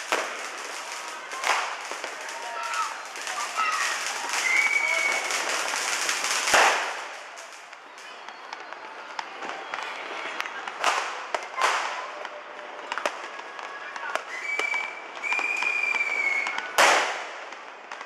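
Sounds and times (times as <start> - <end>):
firecrackers banging and popping: 0.0 - 18.0
high steady whistle: 4.4 - 5.3, 14.2 - 16.7.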